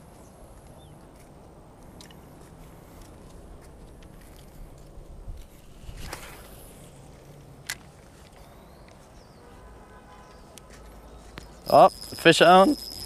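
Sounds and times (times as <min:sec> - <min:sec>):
fishing reel handling: 0:11.4 - 0:13.0.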